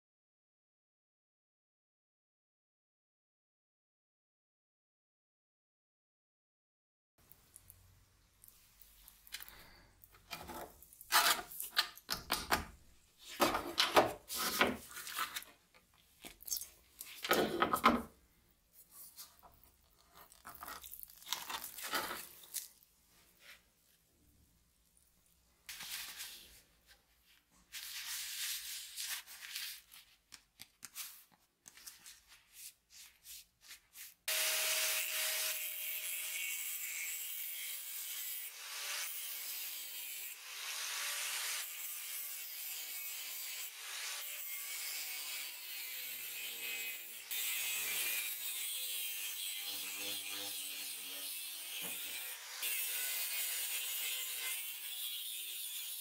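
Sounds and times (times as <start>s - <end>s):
angle grinder grinding metal: 34.3s - 56.0s.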